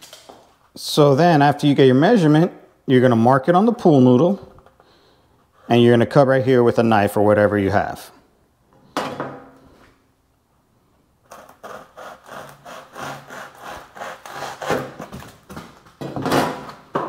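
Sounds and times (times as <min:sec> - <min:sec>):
knife sawing through foam: 0:11.3 - 0:15.1.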